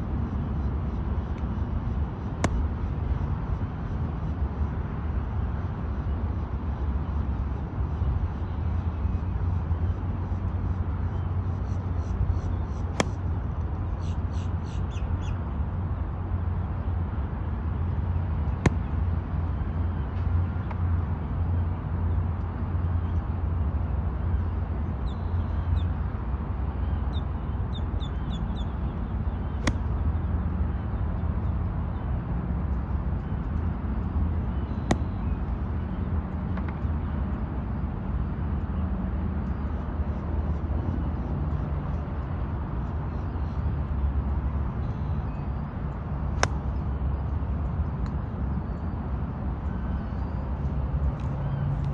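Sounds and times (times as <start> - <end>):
low outdoor rumble: 0.0 - 24.6, 26.9 - 51.9
golf club striking ball: 2.4 - 2.7, 13.0 - 13.2, 18.6 - 19.0.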